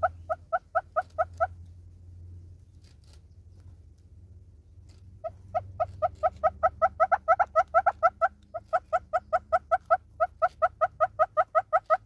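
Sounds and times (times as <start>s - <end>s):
hornbill clucking calls: 0.0s - 1.7s, 4.9s - 12.0s.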